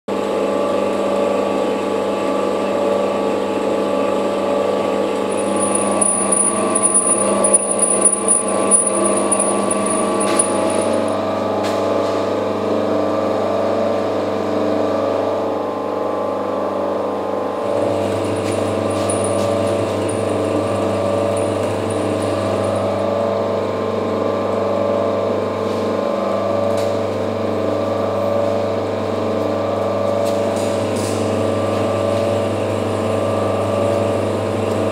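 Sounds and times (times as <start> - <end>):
thin high whine: 5.3 - 11.2.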